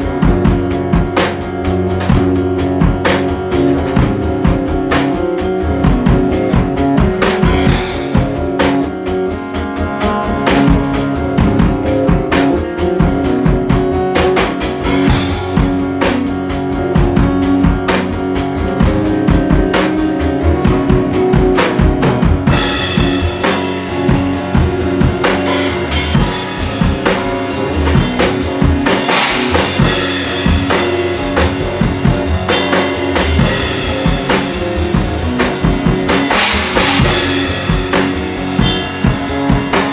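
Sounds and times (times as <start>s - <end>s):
drum kit beat: 0.0s - 39.9s
electric guitar playing: 0.0s - 39.9s
cymbals crashing: 36.1s - 39.9s.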